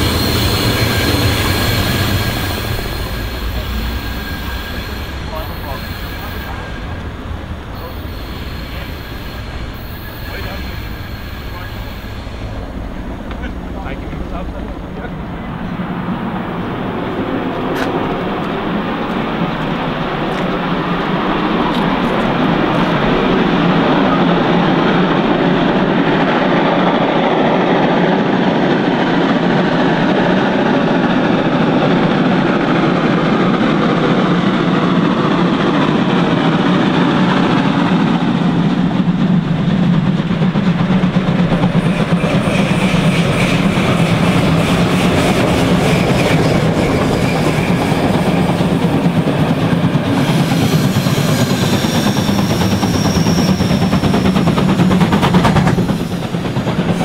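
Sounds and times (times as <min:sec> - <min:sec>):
steam locomotives running: 0:00.0 - 0:57.0
coaches clickety-clack: 0:17.7 - 0:23.2, 0:35.3 - 0:57.0.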